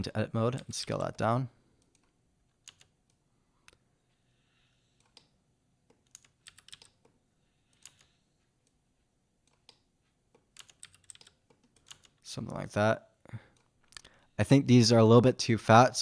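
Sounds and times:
keyboard and mouse clicks: 0:01.8 - 0:03.8, 0:05.0 - 0:08.2, 0:09.4 - 0:12.2.

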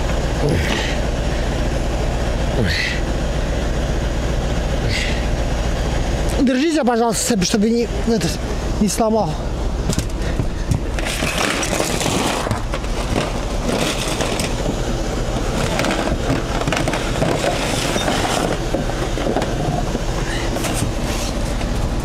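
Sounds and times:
diesel truck engine running: 0:00.0 - 0:22.0
load scraping and knocking: 0:09.9 - 0:21.4.

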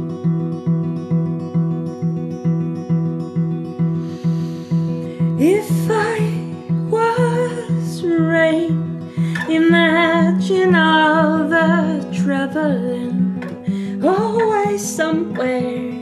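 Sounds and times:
acoustic guitar picking: 0:00.0 - 0:16.0
woman singing with vibrato: 0:05.3 - 0:16.0.

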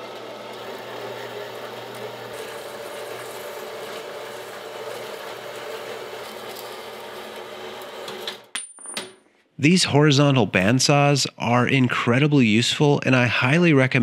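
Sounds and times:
bandsaw cutting metal: 0:00.0 - 0:08.5.

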